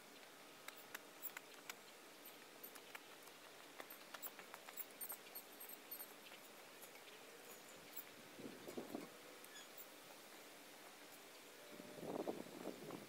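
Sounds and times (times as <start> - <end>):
light ticks: 0.2 - 8.2.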